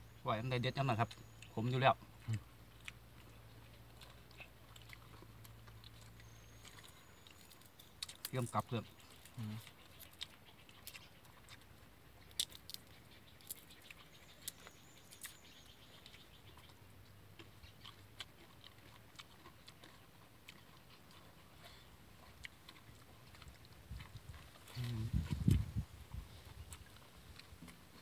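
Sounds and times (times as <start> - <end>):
people chewing and picking at food: 0.0 - 28.0.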